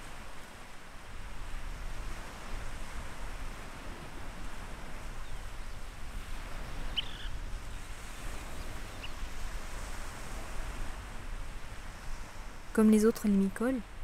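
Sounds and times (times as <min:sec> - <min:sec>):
surf and wind hissing: 0:00.0 - 0:14.0
high bird chirps: 0:06.9 - 0:07.4.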